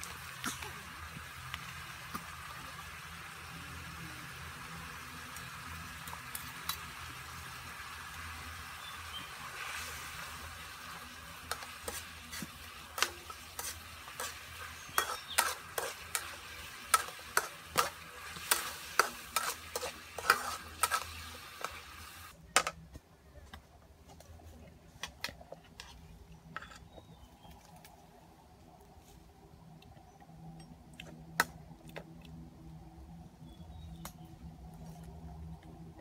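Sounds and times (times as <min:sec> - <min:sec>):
sauce sizzling: 0:00.0 - 0:22.4
metal spatula scraping a wok: 0:11.4 - 0:22.0.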